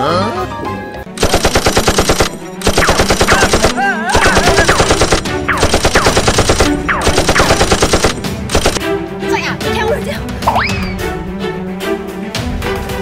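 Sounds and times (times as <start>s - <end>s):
machine gun firing: 1.2s - 8.8s.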